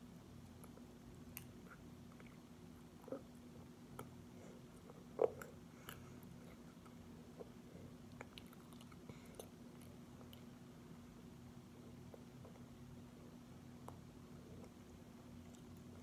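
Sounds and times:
low steady hum: 0.0s - 16.0s
toddler chewing and smacking: 4.9s - 10.6s.

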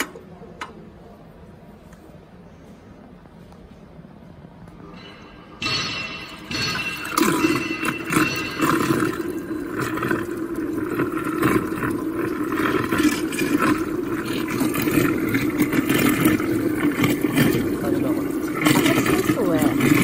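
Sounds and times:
water churning and splashing: 6.4s - 20.0s
mixer motor hum: 6.5s - 20.0s.

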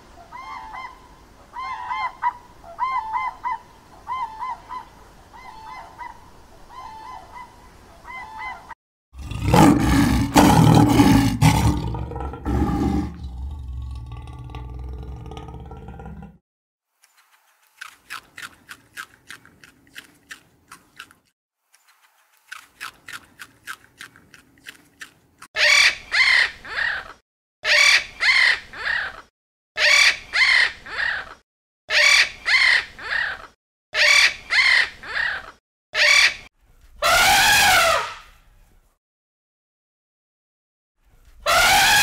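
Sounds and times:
macaw squawking loudly: 25.6s - 29.2s, 29.8s - 31.3s, 31.9s - 38.2s, 41.5s - 42.0s.

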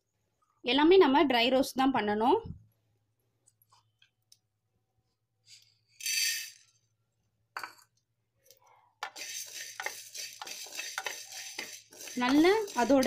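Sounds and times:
seeds poured into a pan: 9.0s - 13.0s
wooden spatula stirring seeds: 9.0s - 13.0s.

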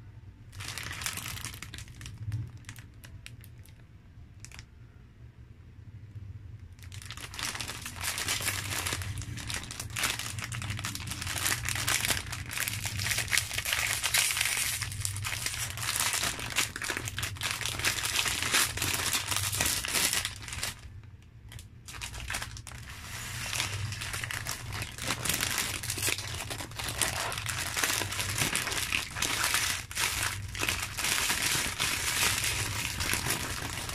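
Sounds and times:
wrapped bars rustling: 0.5s - 2.9s, 6.8s - 20.8s, 21.9s - 33.9s
plastic bag crinkling: 0.5s - 3.8s, 6.8s - 33.9s.

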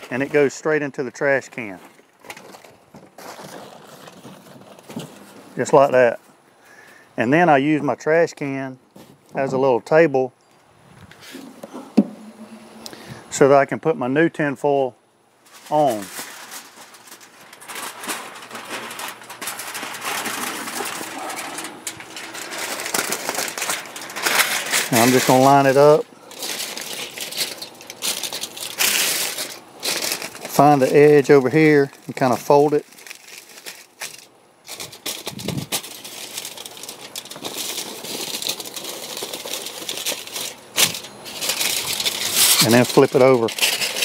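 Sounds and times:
aluminium foil crinkling: 0.0s - 6.0s, 15.4s - 44.0s.

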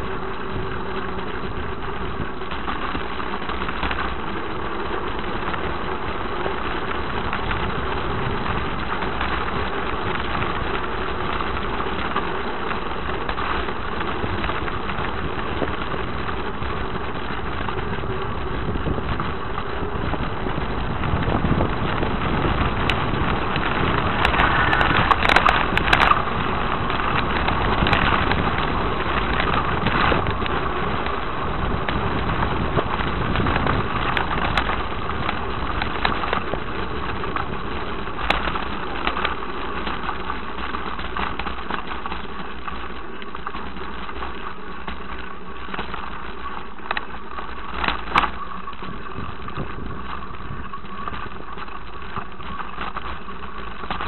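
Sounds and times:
rumbling travel noise: 0.0s - 54.0s
sharp rattles and clicks: 0.0s - 54.0s.

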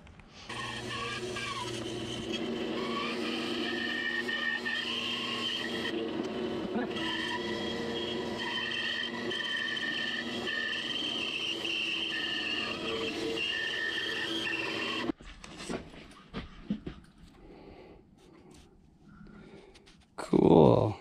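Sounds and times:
bandsaw cutting wood: 0.5s - 15.2s.

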